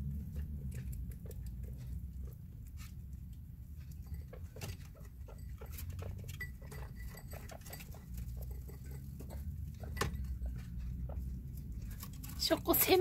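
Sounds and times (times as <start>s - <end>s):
guinea pigs crunching food: 0.0s - 13.0s.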